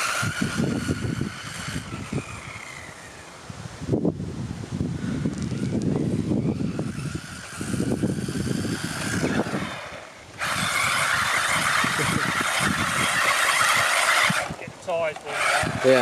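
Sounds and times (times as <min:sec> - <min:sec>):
tyres on rough concrete: 0:00.0 - 0:03.2, 0:05.0 - 0:16.0
electric motor whirring: 0:00.0 - 0:03.4, 0:04.9 - 0:16.0
wind buffeting microphone: 0:00.0 - 0:16.0.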